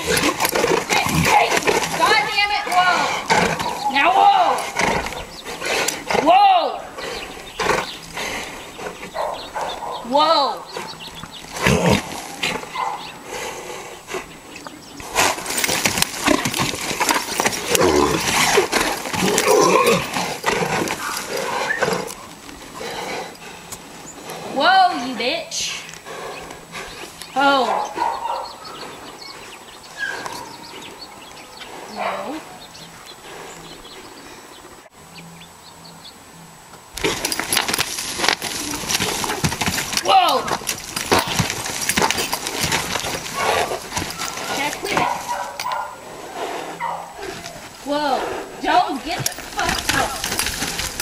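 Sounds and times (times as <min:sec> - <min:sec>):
saddle and tack rattling: 0:00.0 - 0:13.1, 0:14.6 - 0:28.3, 0:37.0 - 0:46.0, 0:46.8 - 0:51.0
hooves striking dirt: 0:00.0 - 0:34.3, 0:36.7 - 0:51.0
horse crying out: 0:15.6 - 0:22.2, 0:37.0 - 0:45.7.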